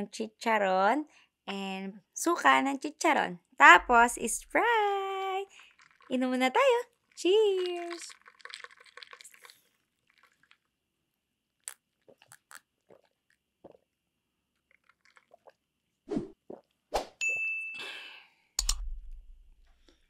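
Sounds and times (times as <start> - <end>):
person drinking soda: 5.5 - 6.1, 7.2 - 10.8, 11.6 - 14.0, 14.6 - 15.7, 16.4 - 16.8
bright ringing ding: 17.2 - 18.0
sharp click: 18.6 - 19.0.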